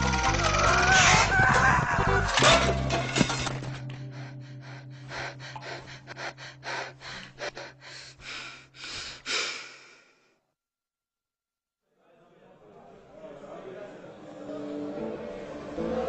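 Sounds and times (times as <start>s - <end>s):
person gasping: 3.8s - 10.4s.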